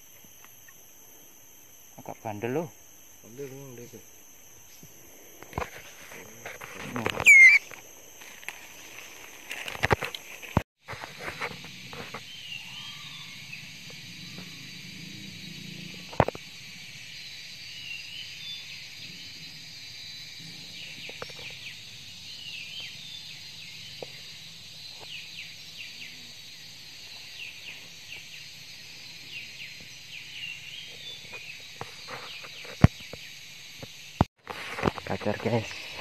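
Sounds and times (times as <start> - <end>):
high insect drone: 0.0 - 36.0
birds chirping: 7.2 - 7.8.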